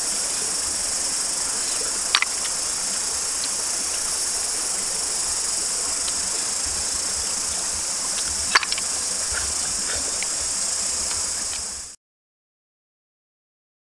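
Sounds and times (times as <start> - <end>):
insects droning: 0.0 - 12.0
faint ticks: 0.4 - 11.9
sharp click: 2.1 - 2.6, 8.1 - 8.9.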